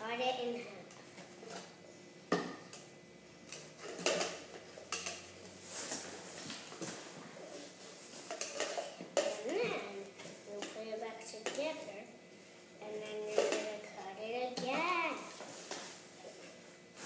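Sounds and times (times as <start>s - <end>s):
plastic cups clacking together: 3.5s - 5.4s, 8.2s - 9.6s.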